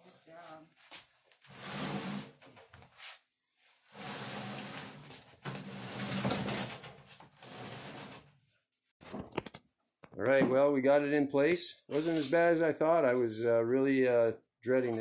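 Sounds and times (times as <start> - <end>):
heavy stove scraping across wood floor: 1.4 - 2.4, 3.9 - 6.7, 7.3 - 8.3.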